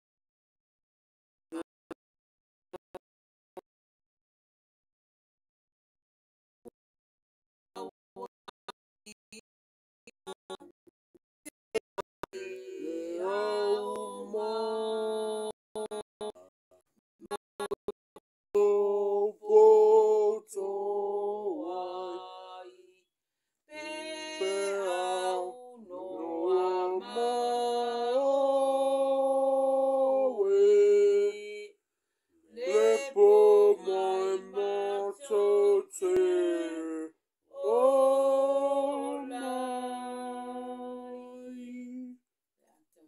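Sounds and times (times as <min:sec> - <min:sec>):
person singing unaccompanied: 0:12.2 - 0:16.5, 0:18.5 - 0:23.0, 0:23.7 - 0:31.8, 0:32.5 - 0:42.2.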